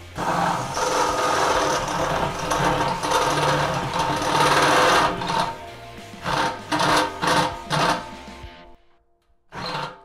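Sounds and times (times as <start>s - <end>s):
drill cutting through steel: 0.0s - 8.2s, 9.5s - 10.0s.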